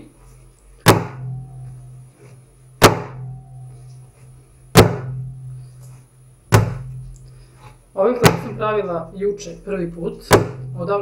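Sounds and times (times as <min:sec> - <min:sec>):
dough slapped on wooden board: 0:00.8 - 0:01.2, 0:02.8 - 0:03.2, 0:04.8 - 0:05.2, 0:06.5 - 0:06.9, 0:08.2 - 0:08.6, 0:10.3 - 0:10.6.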